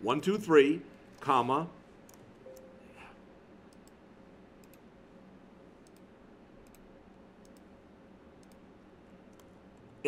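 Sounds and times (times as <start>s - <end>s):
low room hum: 0.0s - 10.0s
faint computer mouse clicks: 4.6s - 4.8s, 5.8s - 7.7s, 8.4s - 8.6s.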